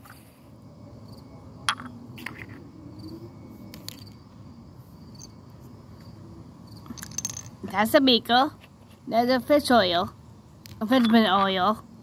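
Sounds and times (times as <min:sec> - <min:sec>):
crickets chirping: 0:00.0 - 0:12.0
glassware clicking on concrete: 0:01.7 - 0:02.0, 0:06.9 - 0:07.6.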